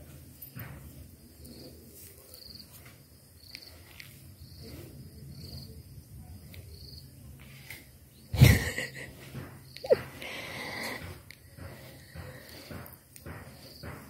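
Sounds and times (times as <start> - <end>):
insect chirping trills: 1.3 - 7.2.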